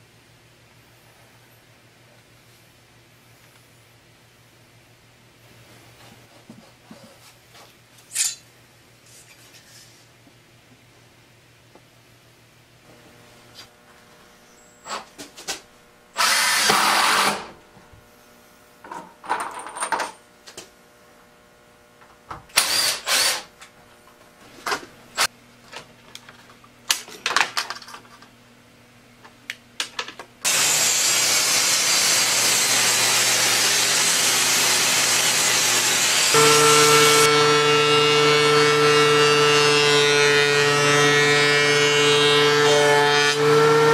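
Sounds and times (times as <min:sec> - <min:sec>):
table saw running: 0:16.2 - 0:17.6, 0:22.6 - 0:23.5, 0:30.5 - 0:43.9.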